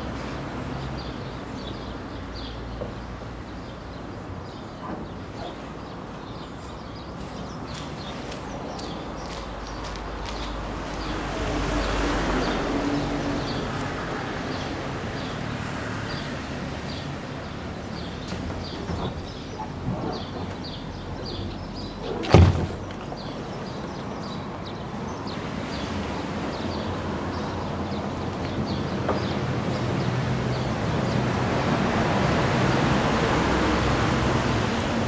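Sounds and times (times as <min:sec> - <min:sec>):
outdoor background noise: 0:00.0 - 0:35.0
kayak hull thud: 0:22.2 - 0:23.1.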